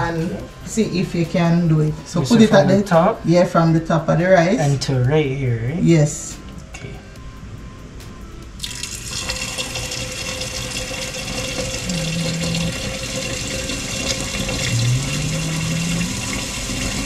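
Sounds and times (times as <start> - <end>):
tap water running into pot: 8.6 - 17.0.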